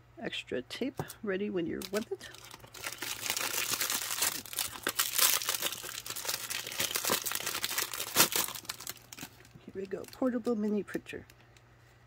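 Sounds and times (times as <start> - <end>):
plastic bag crinkling: 1.8 - 11.2.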